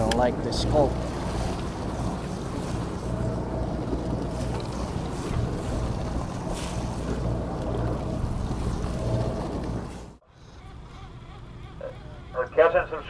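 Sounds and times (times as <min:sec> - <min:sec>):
water washing along hull: 0:00.0 - 0:10.2
wind buffeting microphone: 0:00.0 - 0:10.2
boat engine rumble: 0:00.0 - 0:13.0.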